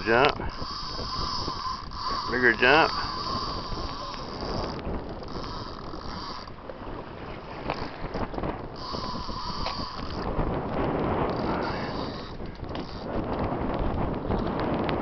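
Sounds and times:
fishing reel drag whining: 0.0s - 6.6s, 7.6s - 10.4s, 11.3s - 13.1s
wind on microphone: 0.0s - 15.0s.

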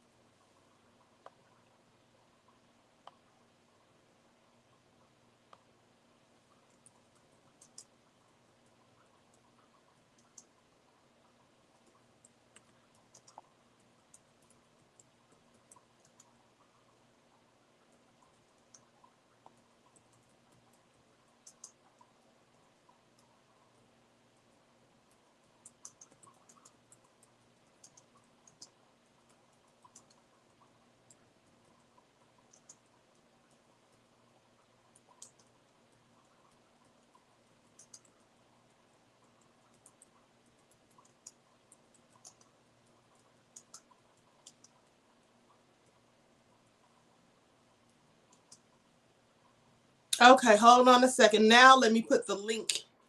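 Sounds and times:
faint low hum: 0.0s - 53.0s
computer mouse and keyboard clicks: 6.5s - 8.0s, 8.6s - 10.7s, 11.3s - 17.0s, 17.8s - 47.1s, 47.7s - 49.6s.

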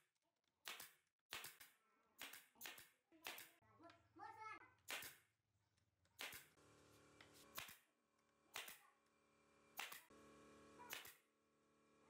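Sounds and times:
nail gun shots: 0.6s - 3.5s, 4.9s - 5.2s, 6.2s - 6.6s, 7.5s - 7.8s, 8.5s - 8.8s, 9.8s - 10.2s, 10.8s - 11.2s.

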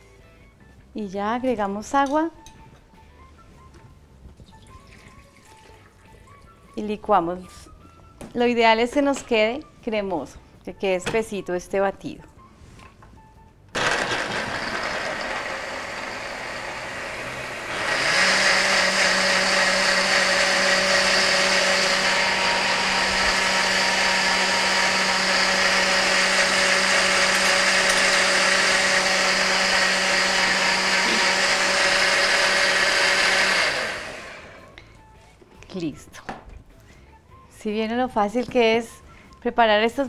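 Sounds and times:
blender running: 13.8s - 34.7s.

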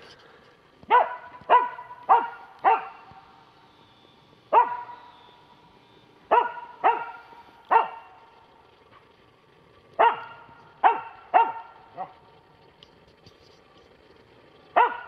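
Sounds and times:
dog barking sharply: 0.9s - 3.1s, 6.3s - 8.1s, 10.0s - 12.1s, 14.8s - 15.0s.

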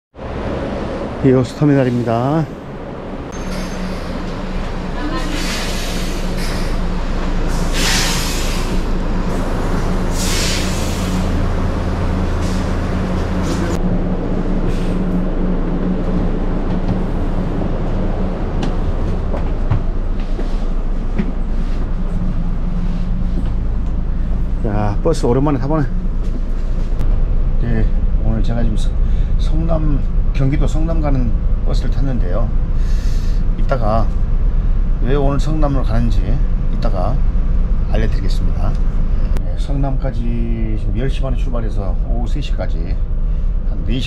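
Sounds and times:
bus diesel engines idling: 0.2s - 44.0s
loud air hisses: 5.2s - 11.5s.

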